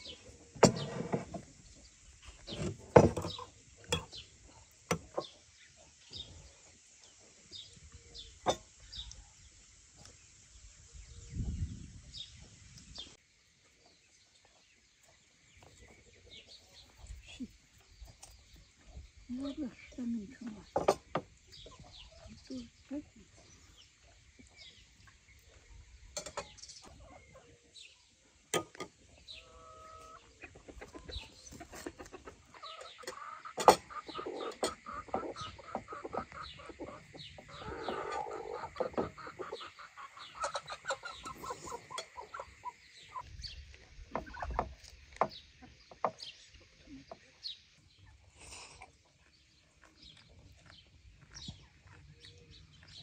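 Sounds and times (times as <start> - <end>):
chickens clucking: 23.4 - 27.8, 28.6 - 53.0.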